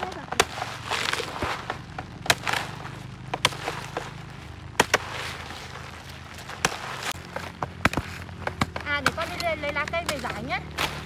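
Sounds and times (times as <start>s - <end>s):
papery nest crackling and crumbling: 0.0s - 11.0s.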